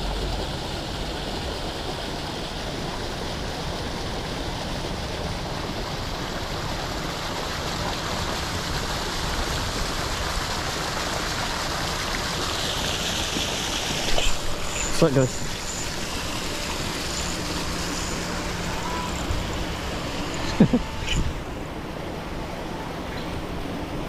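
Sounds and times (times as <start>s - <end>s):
water jets splashing into pond: 0.0s - 21.7s.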